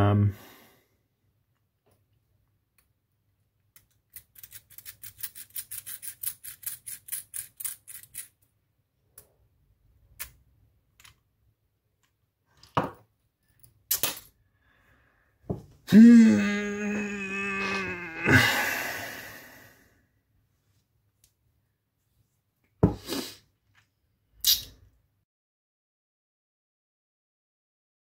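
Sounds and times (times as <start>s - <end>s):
person groaning: 15.9s - 19.8s.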